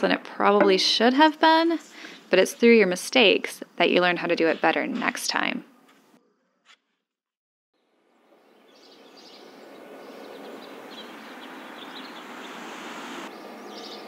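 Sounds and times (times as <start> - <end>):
small birds chirping: 8.3 - 14.0.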